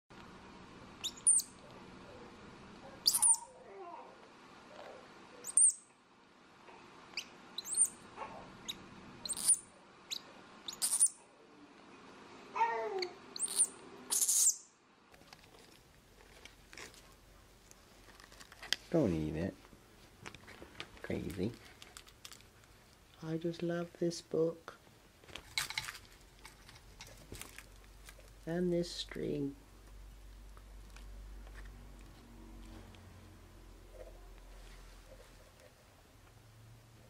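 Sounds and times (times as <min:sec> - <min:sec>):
monkey high-pitched chirps: 0:01.0 - 0:01.6, 0:03.0 - 0:03.6, 0:05.4 - 0:05.8, 0:07.2 - 0:08.0, 0:08.6 - 0:11.2, 0:13.0 - 0:14.7
wavering squeak: 0:03.0 - 0:03.5, 0:07.6 - 0:08.0.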